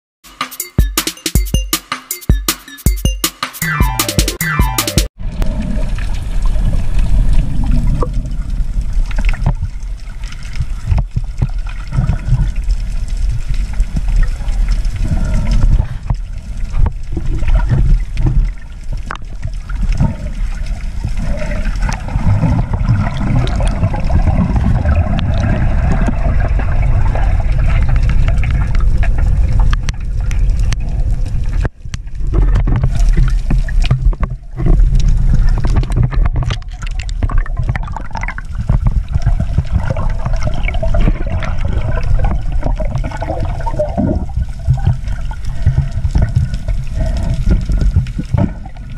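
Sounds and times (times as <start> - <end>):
underwater rumble of moving water: 5.2 - 48.9
water gurgling and bubbling: 5.2 - 48.9.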